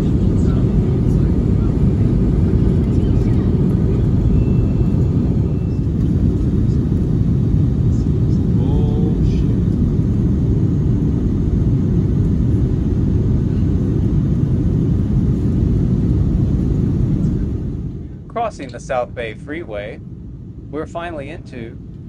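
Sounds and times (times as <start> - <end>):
airliner cabin engine rumble: 0.0 - 22.0.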